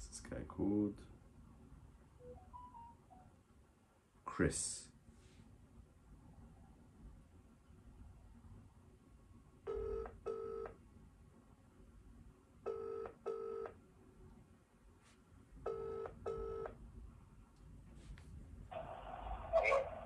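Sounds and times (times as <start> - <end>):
phone ringing tone: 2.2 - 3.3, 9.7 - 10.8, 12.7 - 13.8, 15.7 - 16.8.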